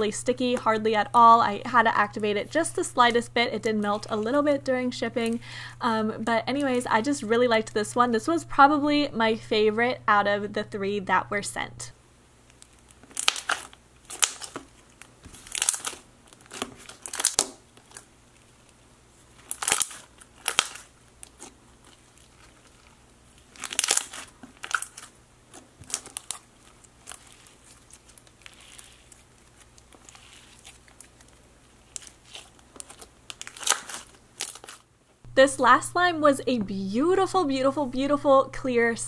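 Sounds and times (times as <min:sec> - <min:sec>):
slime clicking and popping: 0:13.1 - 0:14.6.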